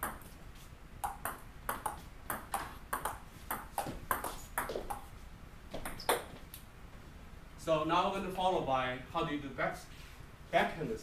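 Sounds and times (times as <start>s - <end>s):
table tennis ball pinging: 0.0s - 0.4s, 1.0s - 5.1s, 5.7s - 6.4s.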